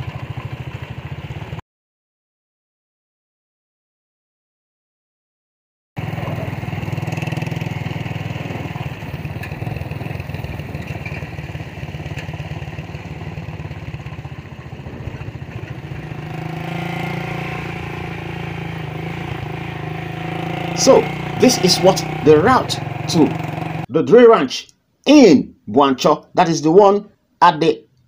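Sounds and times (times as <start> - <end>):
motorcycle engine running: 0.0 - 1.6, 6.0 - 23.9.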